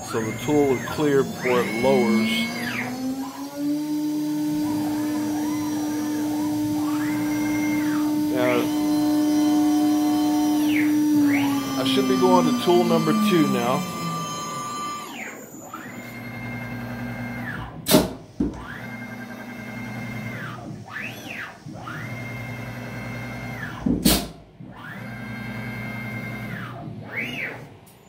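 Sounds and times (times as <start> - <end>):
machine axis motors whining: 0.0 - 17.8.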